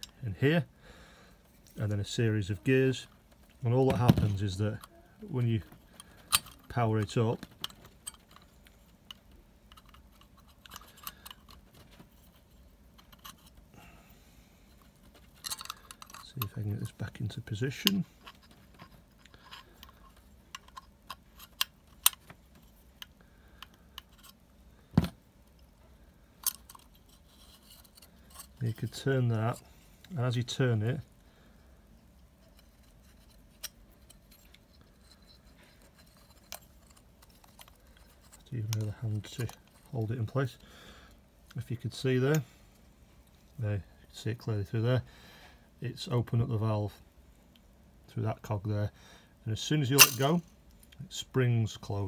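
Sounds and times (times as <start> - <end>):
handling of metal valve gears: 5.5 - 13.6, 14.9 - 22.2, 32.4 - 40.0, 49.9 - 50.4
plastic and metal parts clicking: 5.6 - 12.1, 14.8 - 24.4, 26.4 - 28.8, 32.4 - 39.9.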